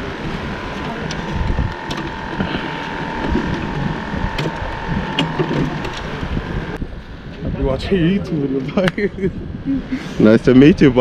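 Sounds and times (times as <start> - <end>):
faint steady hum: 0.0 - 7.2
wind buffeting microphone: 0.0 - 11.0.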